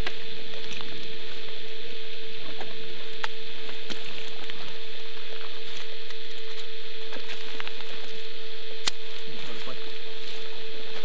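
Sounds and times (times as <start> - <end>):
steady hum: 0.0 - 11.0
sharp clicks: 8.8 - 9.2.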